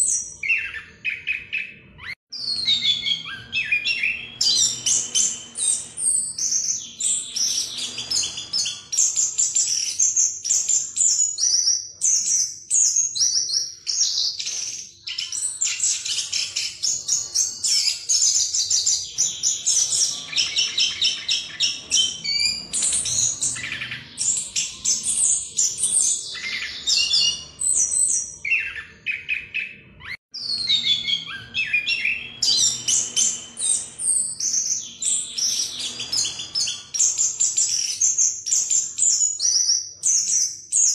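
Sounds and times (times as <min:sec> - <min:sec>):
thrush singing whistles and trills: 0:00.0 - 0:40.9.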